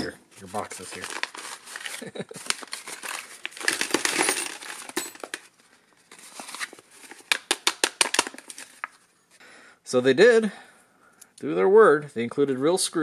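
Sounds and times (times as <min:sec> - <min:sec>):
paper packet crinkling: 0:00.3 - 0:09.1
metal screws clinking: 0:02.8 - 0:05.4.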